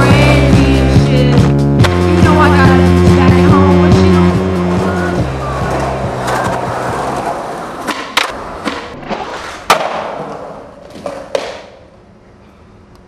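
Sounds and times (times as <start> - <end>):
skateboard wheels rolling on concrete: 0.0 - 12.2
skateboard clacking on ground: 9.6 - 11.9.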